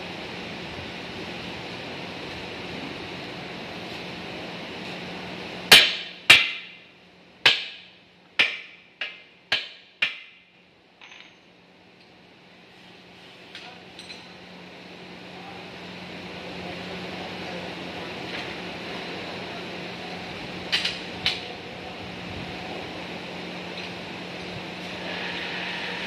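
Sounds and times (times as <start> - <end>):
lathe running: 24.8 - 26.0.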